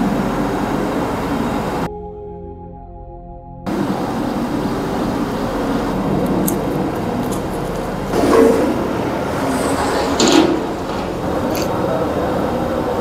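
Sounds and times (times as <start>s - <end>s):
gas burner roaring: 0.0s - 1.9s, 3.7s - 13.0s
metal clatter: 9.7s - 11.7s.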